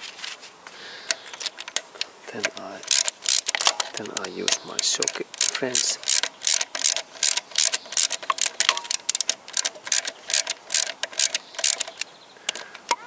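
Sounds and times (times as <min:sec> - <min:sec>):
ratchet wrench clicking: 0:02.4 - 0:12.6.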